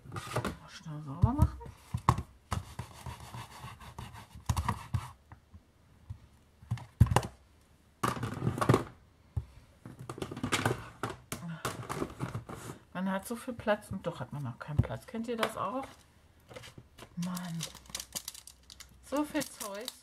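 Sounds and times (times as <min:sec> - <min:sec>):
stamping supplies handled on desk: 0:01.4 - 0:05.2.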